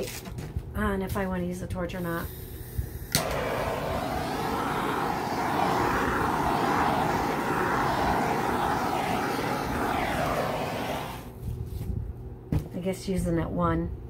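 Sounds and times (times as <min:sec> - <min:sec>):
gas torch hissing: 0:02.0 - 0:11.3.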